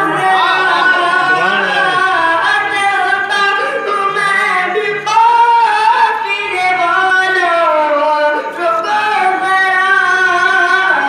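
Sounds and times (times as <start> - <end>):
person singing unaccompanied: 0.0 - 11.0.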